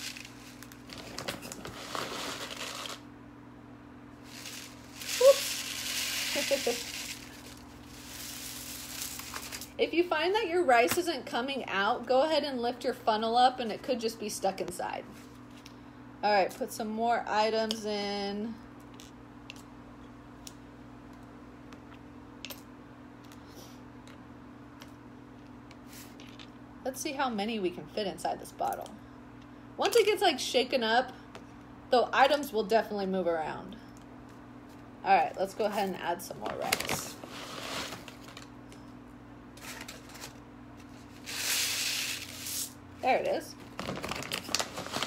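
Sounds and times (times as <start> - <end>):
steady low hum: 0.0 - 45.0
rice grains pouring into bottle: 4.2 - 9.7.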